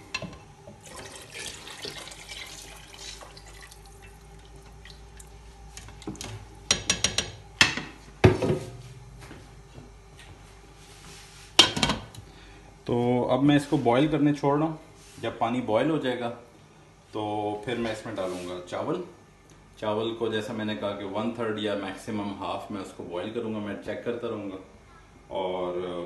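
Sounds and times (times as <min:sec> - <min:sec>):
water hissing in hot oil: 0:00.8 - 0:05.0.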